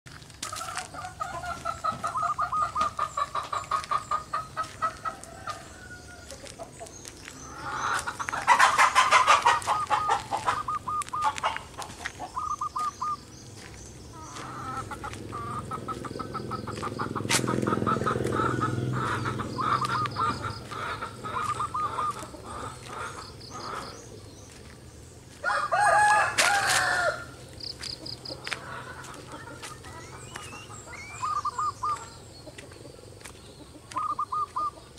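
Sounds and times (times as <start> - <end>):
doves cooing: 0.4 - 34.9
rooster crowing: 4.9 - 6.4, 25.4 - 27.4.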